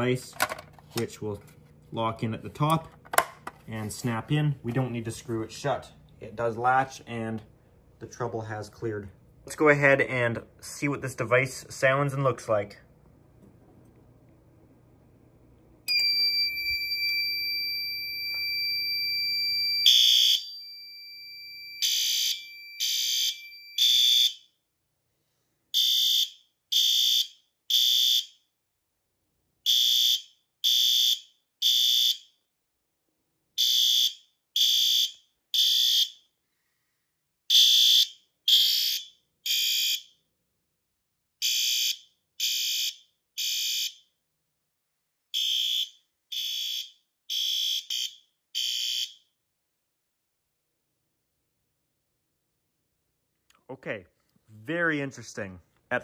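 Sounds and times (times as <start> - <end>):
steady alarm tone: 15.9 - 24.5, 25.8 - 28.3, 29.7 - 32.3, 33.6 - 36.2, 37.5 - 40.1, 41.4 - 44.0, 45.4 - 49.2.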